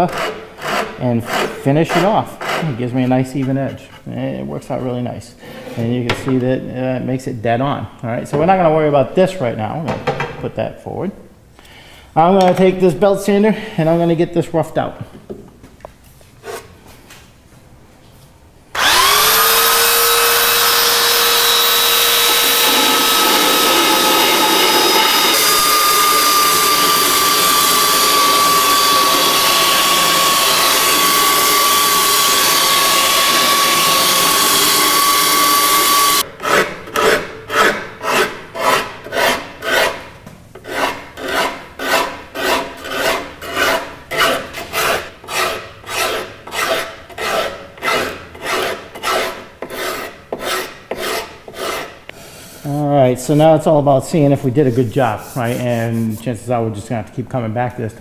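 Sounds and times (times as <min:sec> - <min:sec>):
hand rasp strokes on wood: 0:00.0 - 0:02.8, 0:18.8 - 0:36.2, 0:40.6 - 0:53.6, 0:54.6 - 0:56.4
belt sander whining: 0:18.7 - 0:36.3.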